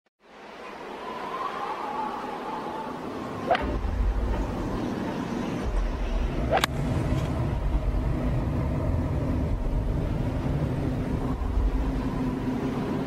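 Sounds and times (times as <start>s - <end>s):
low rumble: 3.6s - 13.0s.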